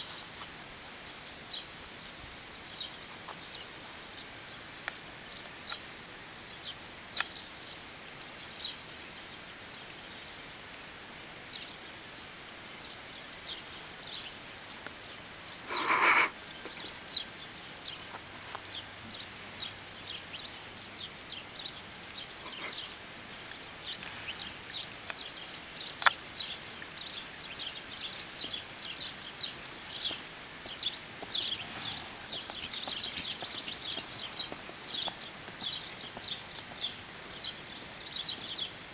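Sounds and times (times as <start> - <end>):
small birds chirping: 0.0 - 38.9
horse blowing through nose: 15.6 - 16.4.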